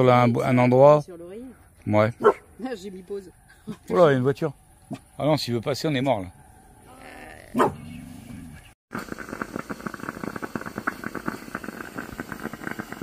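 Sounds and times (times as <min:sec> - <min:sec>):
dog barking: 0:02.2 - 0:02.5, 0:07.6 - 0:07.8
dense steady crackling: 0:08.9 - 0:13.0.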